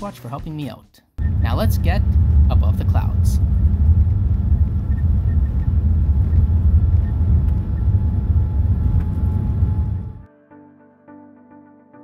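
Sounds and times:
wheels rumbling on runway: 1.2 - 10.2
jet engines roaring: 1.2 - 10.3
soft music: 10.2 - 12.0.

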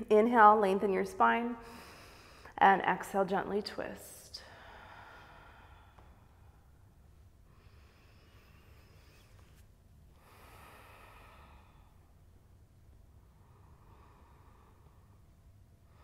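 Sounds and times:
low room hum: 0.0 - 16.0
slow breathing through nose: 7.5 - 12.1.

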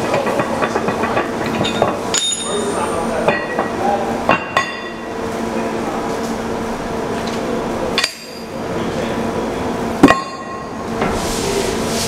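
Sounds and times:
metal track hardware clanking: 0.0 - 3.8
steady hum: 0.0 - 12.0.

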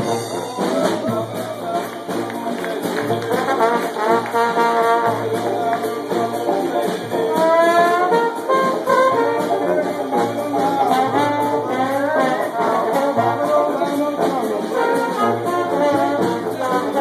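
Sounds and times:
strummed banjo: 0.0 - 17.0
trombone: 0.0 - 17.0
tenor saxophone: 7.2 - 17.0.

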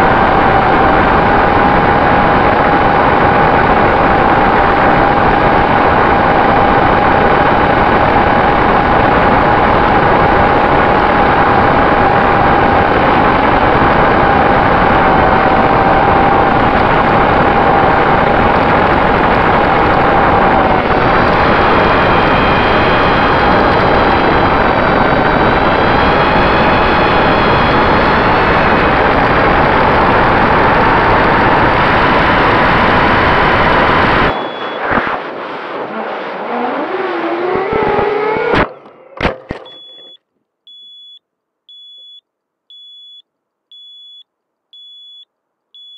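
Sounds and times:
wind noise: 0.0 - 38.8
drone motors and propellers: 0.0 - 40.0
short high beeps: 34.3 - 34.9, 39.6 - 44.2, 44.8 - 45.9.

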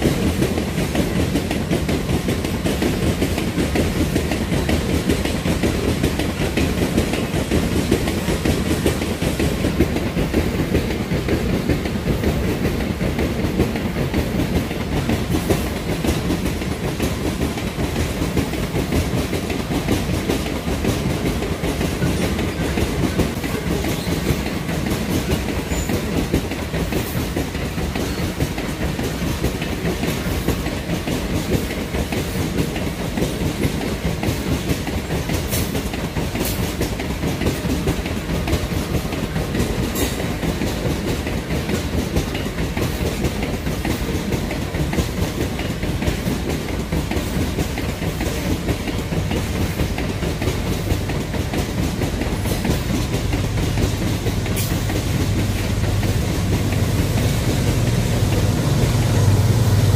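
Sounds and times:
diesel locomotive drone: 0.0 - 59.9
train wheels clicking over rail joints: 0.0 - 59.9.

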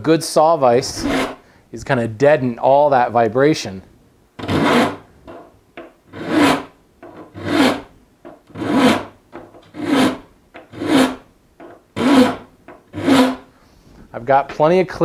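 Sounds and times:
file rasping on saw teeth: 1.0 - 1.4, 4.4 - 5.0, 6.1 - 7.9, 8.5 - 11.2, 12.0 - 13.5.

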